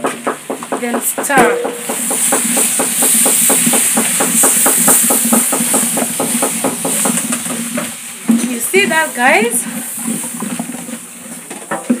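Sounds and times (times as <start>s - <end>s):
food sizzling: 0.0s - 12.0s
spoon knocking against pot: 0.2s - 3.0s.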